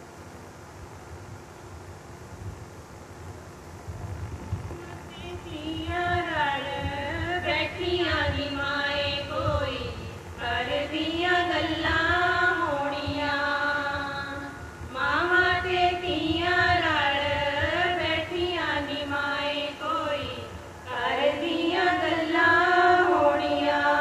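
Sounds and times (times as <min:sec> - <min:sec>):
women singing into microphone: 0:05.1 - 0:24.0.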